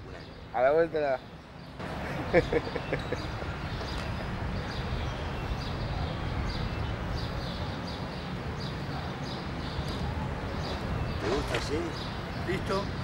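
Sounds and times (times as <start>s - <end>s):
city traffic rumble: 0.0s - 13.0s.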